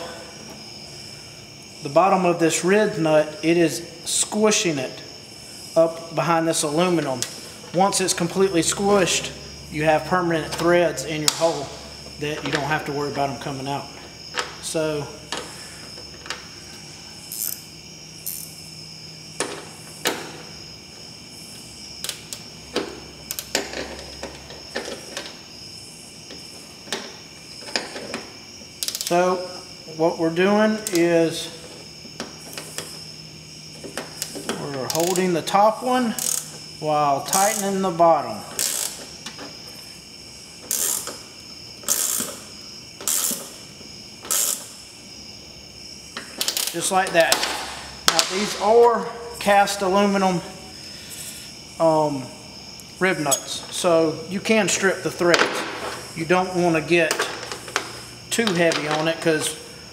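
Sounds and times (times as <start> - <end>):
ratcheting wrench clicking: 17.3 - 17.6, 28.8 - 29.1, 34.2 - 35.2, 36.1 - 36.6, 37.3 - 37.8, 38.6 - 39.0, 40.7 - 41.2, 41.8 - 42.4, 43.0 - 43.5, 44.2 - 44.7.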